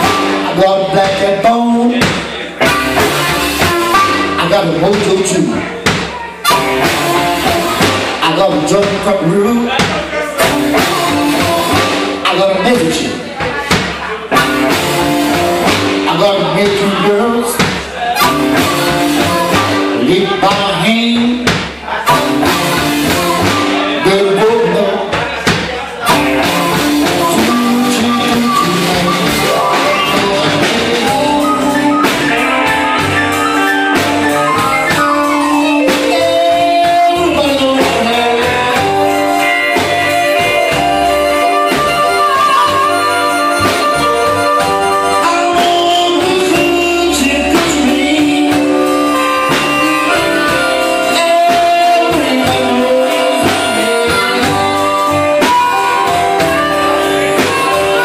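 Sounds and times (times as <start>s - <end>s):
electric guitar: 0.0s - 25.4s, 26.0s - 58.0s
drums: 0.0s - 58.0s
upright bass: 0.0s - 58.0s
amplified harmonica solo: 2.7s - 5.1s, 6.4s - 8.2s, 18.2s - 20.1s, 26.1s - 58.0s.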